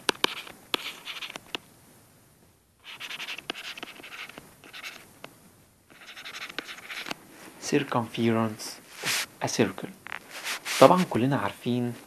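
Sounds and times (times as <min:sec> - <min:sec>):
stylus scratchy writing strokes: 0:00.0 - 0:01.5, 0:02.8 - 0:05.1, 0:05.9 - 0:07.2, 0:09.0 - 0:09.3, 0:10.2 - 0:11.1.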